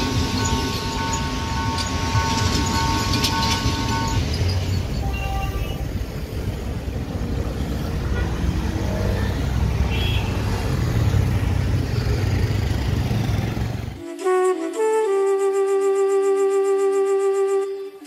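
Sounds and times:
road traffic engine rumble: 0.0 - 14.0.

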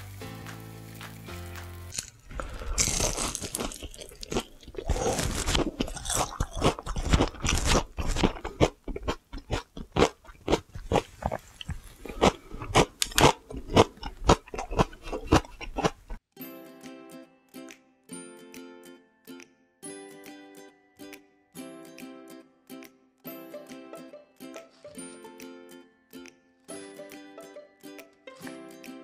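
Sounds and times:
crunching and chewing food: 1.9 - 16.2.

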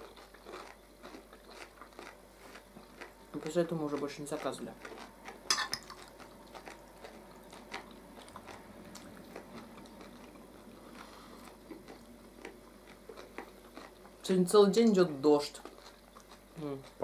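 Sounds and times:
people chewing food: 0.0 - 17.0
forks clicking against plates: 5.5 - 6.0.

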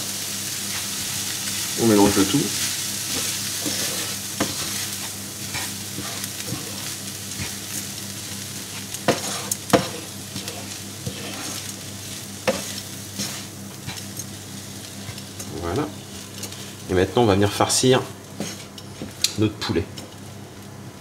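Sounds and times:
food sizzling in frying pan: 0.0 - 20.8
wooden spoon stirring: 3.1 - 16.6.

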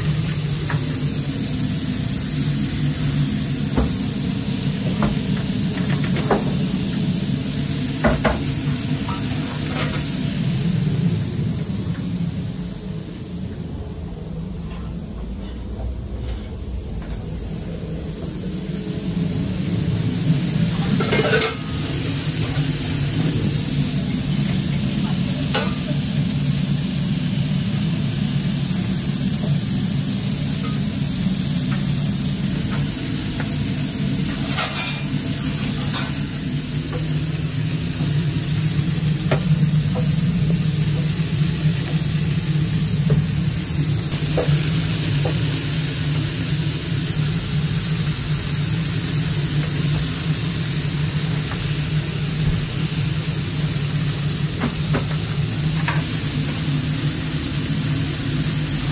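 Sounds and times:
patties sizzling on a grill: 0.0 - 13.1, 18.4 - 58.9
low machine hum: 0.0 - 58.9.

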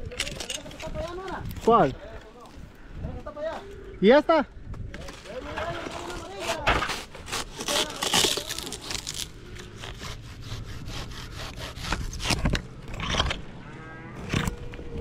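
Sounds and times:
hand saw cutting: 5.7 - 13.4.

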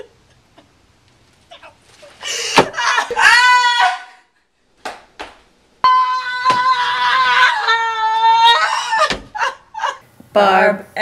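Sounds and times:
woman screaming: 2.6 - 4.3, 5.8 - 10.0.

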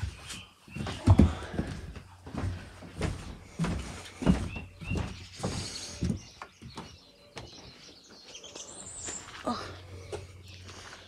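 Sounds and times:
footsteps on a hard floor: 0.0 - 8.2.

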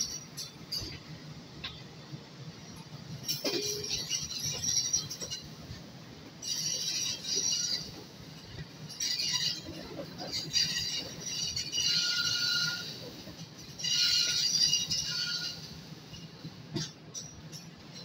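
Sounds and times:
wheels squealing on rails: 0.0 - 1.8, 2.4 - 18.0
train rumbling: 0.0 - 18.0.

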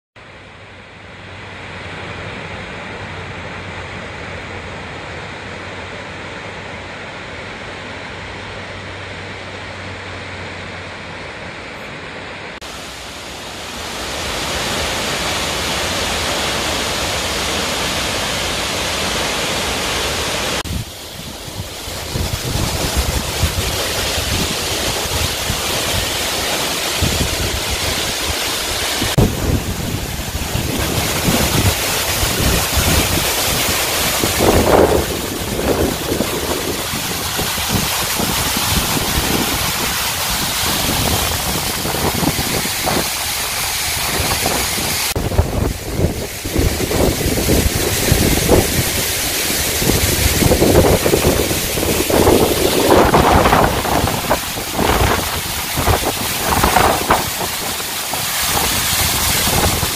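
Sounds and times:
waterfall rushing: 0.3 - 59.9
wind buffeting microphone: 20.6 - 59.9.

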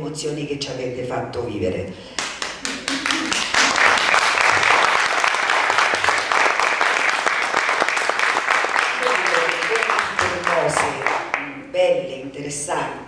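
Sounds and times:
audience applauding: 2.2 - 11.6.

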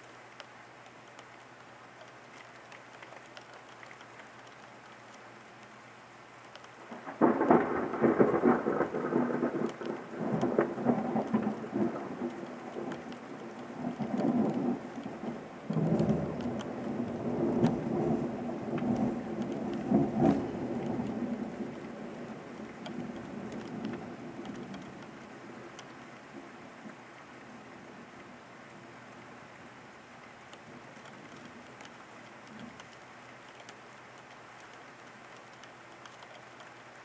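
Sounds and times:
steady rain: 0.0 - 37.0
thunder rumbling: 6.8 - 32.8.

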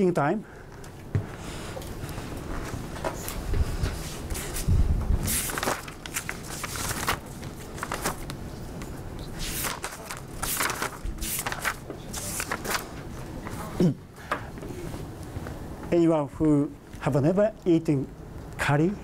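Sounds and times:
paper sheets rustling: 2.2 - 13.7.

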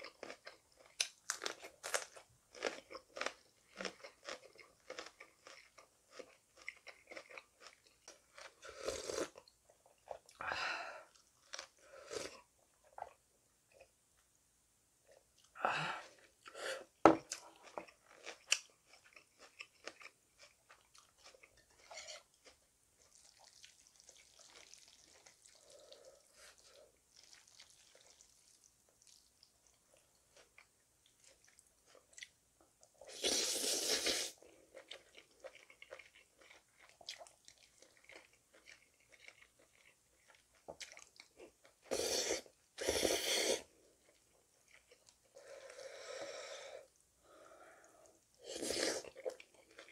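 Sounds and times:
quiet chewing: 0.0 - 14.3, 15.0 - 33.2, 33.8 - 42.9, 43.6 - 49.9
noodle slurps: 33.1 - 34.4.

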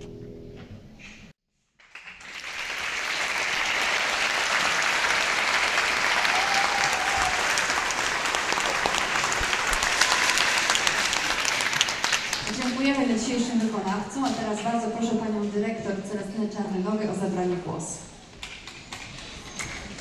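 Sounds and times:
audience applauding: 1.8 - 13.0.

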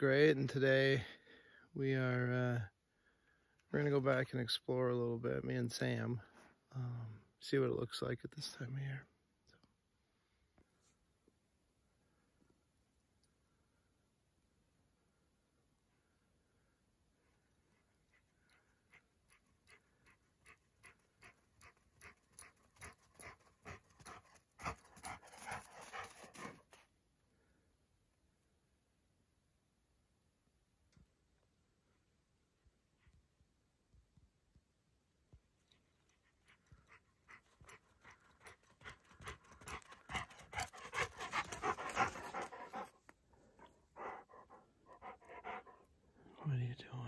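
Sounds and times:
dog panting: 17.6 - 26.8, 36.0 - 46.0.

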